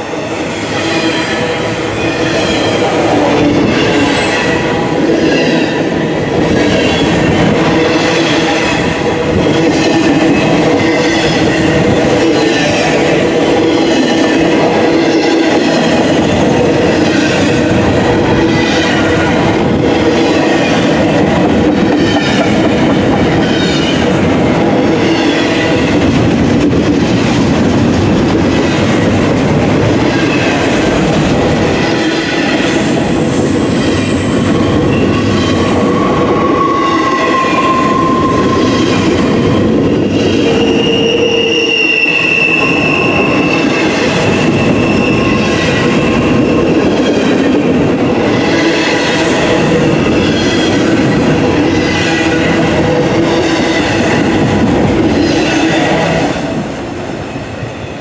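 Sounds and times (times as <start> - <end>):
freight train wheels rumbling: 0.0 - 58.0.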